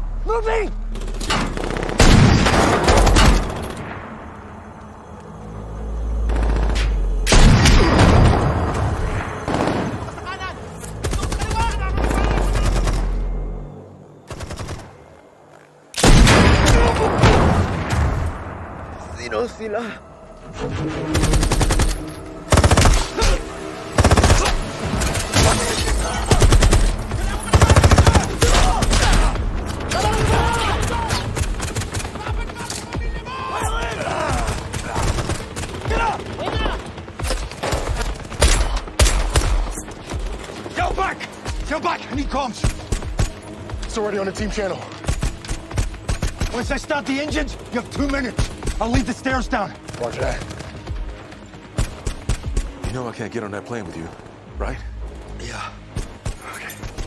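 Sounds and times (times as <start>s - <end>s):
film score: 0.0s - 57.0s
rapid gunfire: 24.0s - 29.4s, 30.0s - 32.5s, 34.3s - 39.6s, 49.8s - 51.1s.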